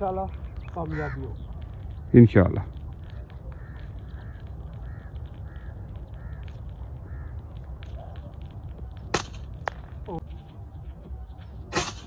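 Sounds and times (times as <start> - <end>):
bird calling: 0.0 - 12.0
air rifle shot: 9.1 - 9.5.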